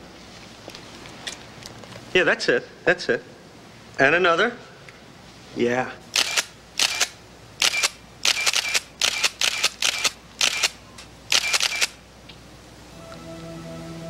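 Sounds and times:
camera shutter clicking: 6.2s - 12.0s
soft music with held notes: 12.8s - 14.0s.

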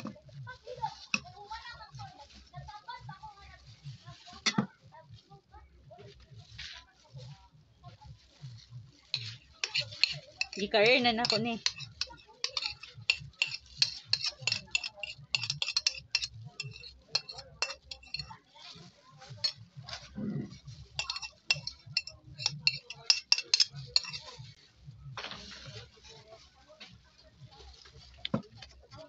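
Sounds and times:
crinkling plastic glove: 0.0s - 29.0s
clinks of glass bowl: 21.0s - 24.2s.

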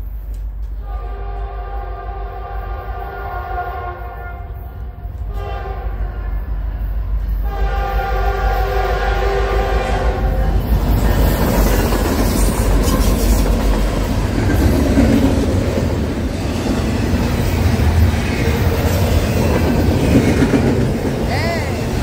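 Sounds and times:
locomotive air horn: 0.8s - 6.6s, 7.4s - 10.4s
train wheels clattering on rails: 10.1s - 22.0s.

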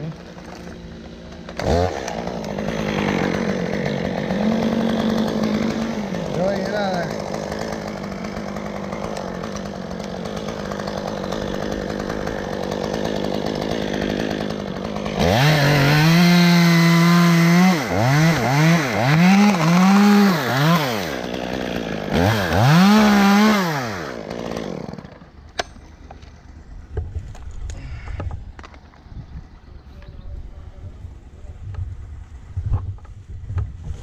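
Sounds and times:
chainsaw revving: 0.0s - 25.8s.

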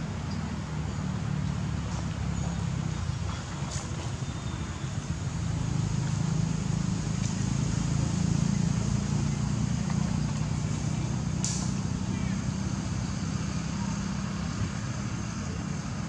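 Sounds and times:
engine droning: 0.0s - 16.0s.

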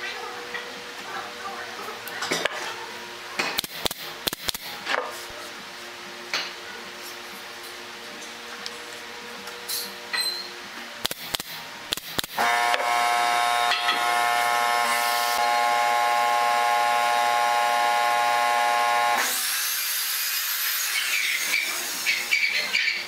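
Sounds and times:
air compressor motor humming: 11.0s - 19.6s.

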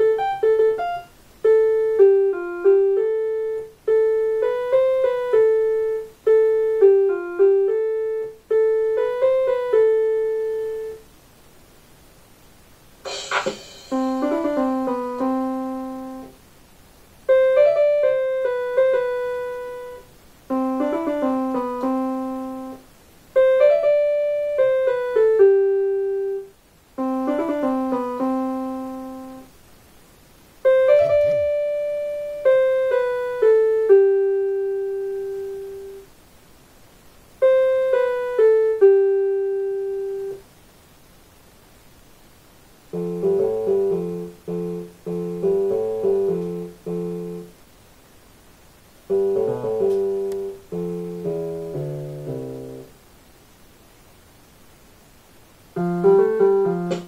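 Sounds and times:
piano melody: 0.0s - 11.0s, 13.1s - 16.4s, 17.3s - 29.5s, 30.6s - 36.1s, 37.4s - 40.4s, 42.9s - 47.5s, 49.1s - 53.0s, 55.8s - 57.0s.

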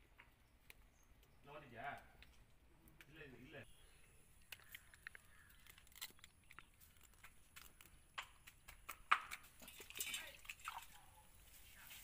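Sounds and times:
crab shell cracking: 4.4s - 9.4s.

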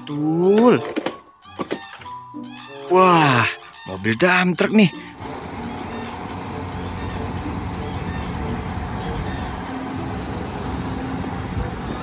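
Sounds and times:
dump truck engine running: 4.9s - 12.0s
hydraulic hoist raising: 5.1s - 12.0s.

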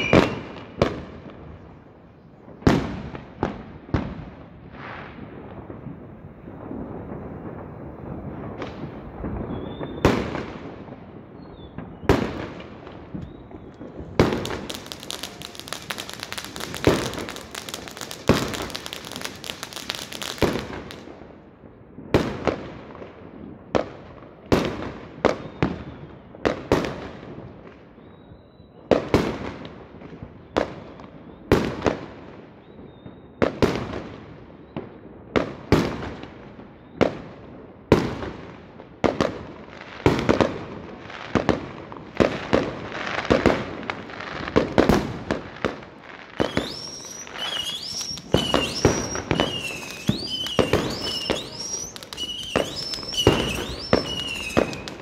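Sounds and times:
fireworks shells bursting: 0.0s - 0.8s, 13.1s - 20.9s, 46.4s - 55.0s
distant fireworks bangs: 0.0s - 55.0s
fireworks crackling: 0.0s - 55.0s.

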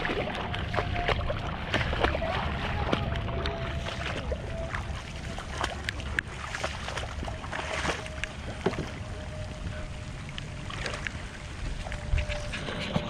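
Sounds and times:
footsteps splashing through water: 0.0s - 9.7s.

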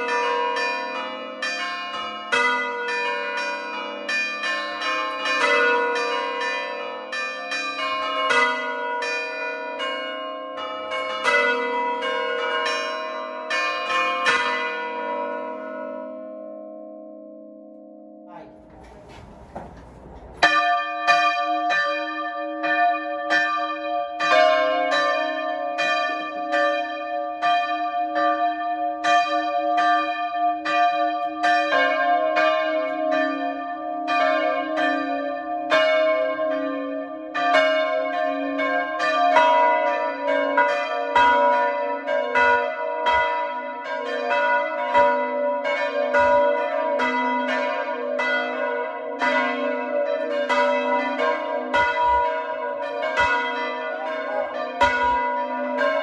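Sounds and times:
church bells pealing: 0.0s - 56.0s.

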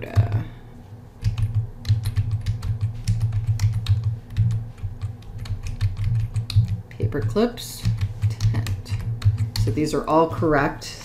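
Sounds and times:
computer keyboard typing: 1.2s - 9.8s.

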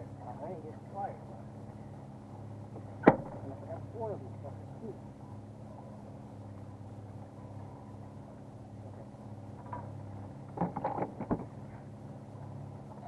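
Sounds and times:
boat motor humming: 0.0s - 13.0s
knocks and clatter: 10.5s - 11.6s.

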